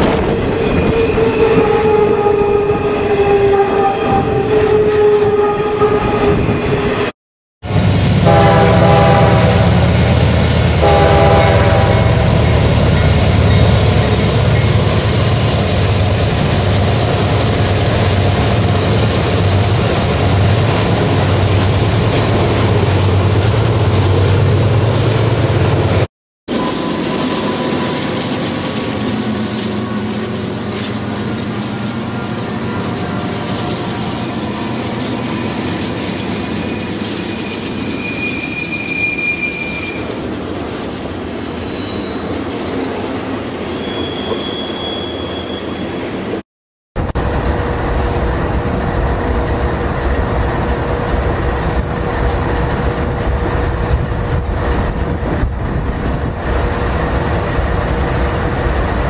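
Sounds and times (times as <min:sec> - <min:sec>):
diesel locomotive engine drone: 0:00.0 - 0:38.9, 0:47.0 - 0:59.0
train horn blasts: 0:00.6 - 0:06.4, 0:08.2 - 0:10.0, 0:10.8 - 0:12.5.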